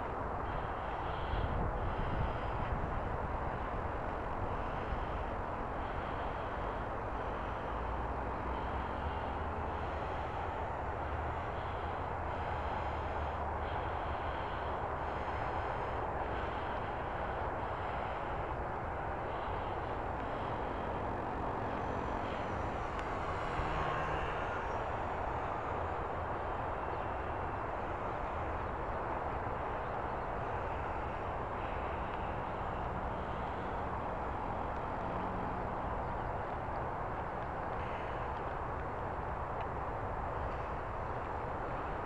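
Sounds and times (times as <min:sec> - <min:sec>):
steady rushing noise: 0:00.0 - 0:42.0
model plane motor whine: 0:00.4 - 0:28.9.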